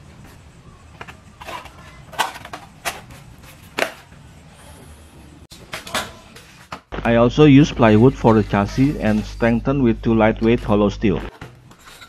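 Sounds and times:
low steady hum: 7.0s - 12.0s.

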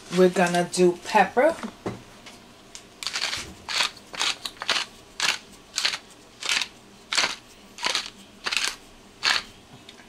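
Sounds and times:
pepper grinder crunching: 3.0s - 9.5s.

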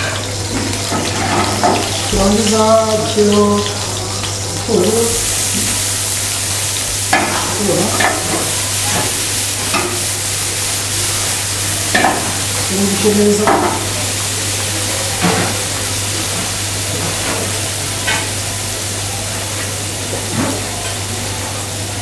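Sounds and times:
onion sizzling in oil: 0.0s - 22.0s.

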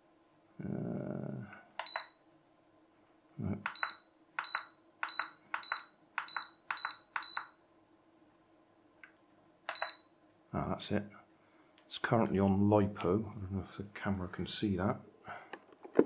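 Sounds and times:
button clicks: 1.8s - 2.2s, 9.7s - 10.0s
high beeps: 3.7s - 7.6s, 9.7s - 10.1s.

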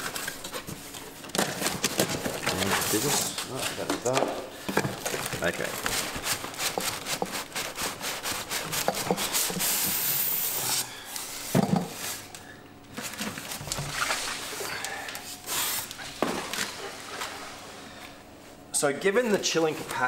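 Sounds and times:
cardboard and packing rustling: 0.0s - 9.7s, 12.9s - 16.9s.

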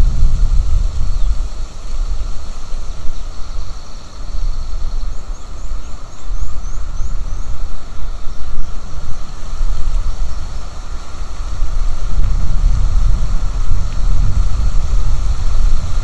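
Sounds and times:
wind buffeting microphone: 0.0s - 16.0s
small bird calling: 0.7s - 12.1s.

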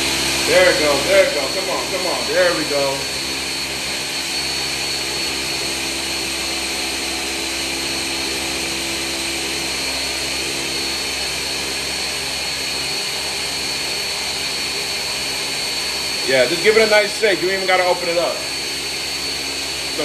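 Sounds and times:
high whine: 0.0s - 7.6s.

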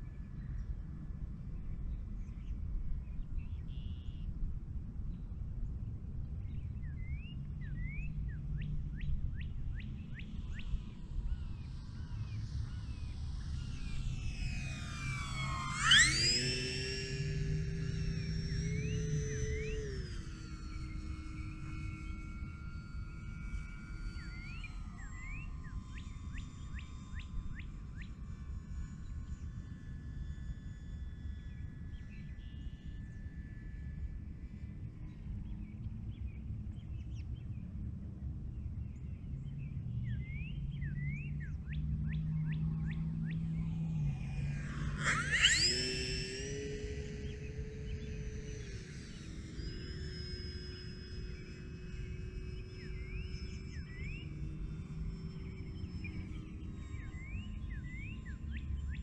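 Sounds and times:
model plane motor hum: 6.2s - 36.6s, 40.6s - 59.0s.

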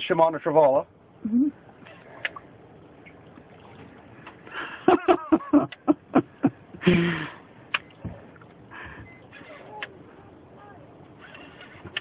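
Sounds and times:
person laughing: 4.6s - 7.4s.

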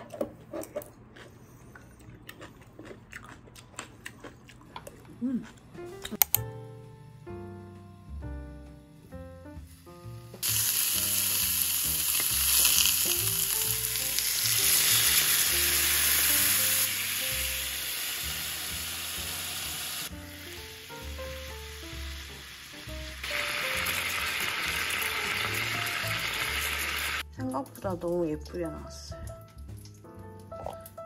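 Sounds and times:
food sizzling in a frying pan: 9.7s - 27.2s.

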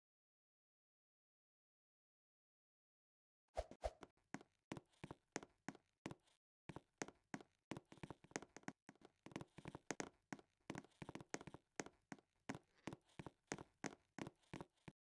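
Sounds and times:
faint irregular taps: 4.3s - 15.0s.

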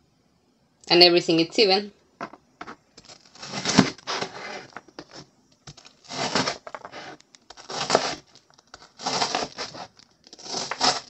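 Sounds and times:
knife chopping on plastic board: 6.1s - 11.0s.

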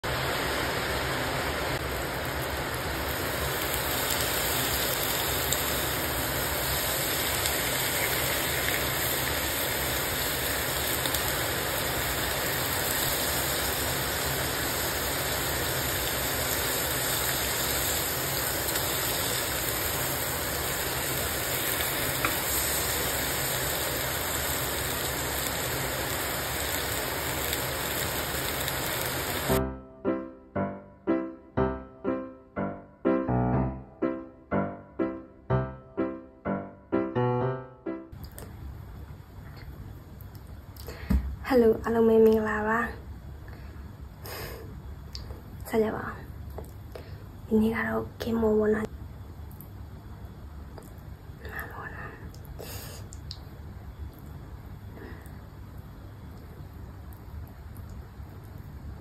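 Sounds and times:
food sizzling in a pan: 0.1s - 29.6s.

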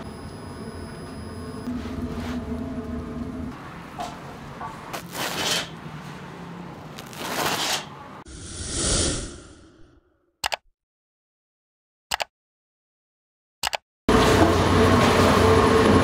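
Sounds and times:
rushing sound effect: 8.3s - 10.0s
quick clicks: 10.4s - 10.7s, 12.1s - 12.3s, 13.6s - 13.8s.

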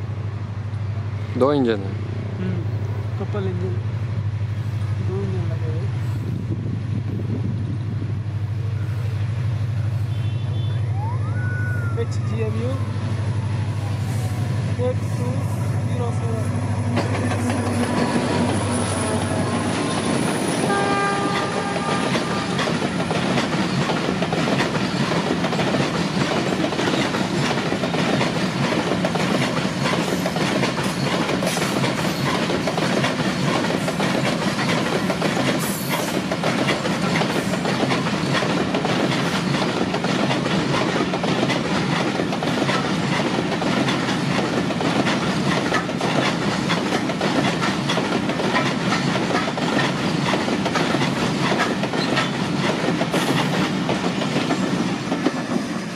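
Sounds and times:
freight train rumbling past: 0.0s - 55.9s
wheels clattering over rails: 15.0s - 55.9s.

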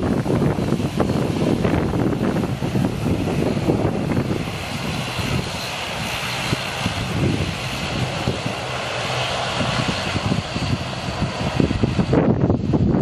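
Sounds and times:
turboprop engines humming and whining: 0.0s - 13.0s
wind buffeting microphone: 0.0s - 13.0s.

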